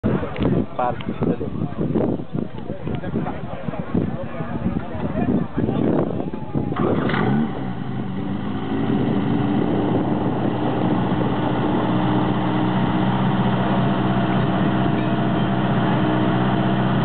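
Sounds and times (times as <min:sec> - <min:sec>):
pump engine humming steadily: 0:06.7 - 0:17.0.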